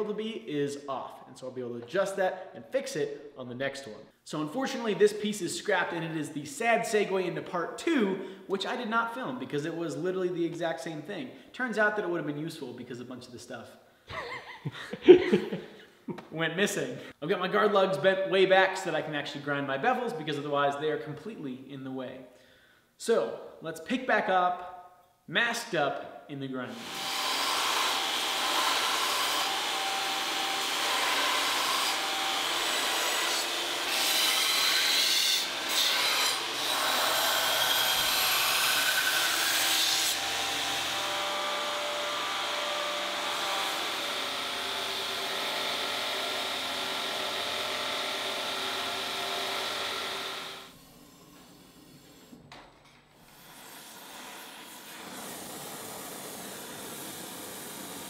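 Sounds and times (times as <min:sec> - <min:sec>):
belt grinder grinding blade: 0:26.8 - 0:52.3.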